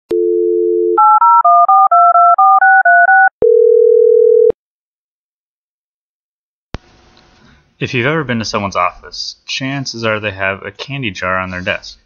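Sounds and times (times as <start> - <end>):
steady dial tone: 0.1 - 4.6.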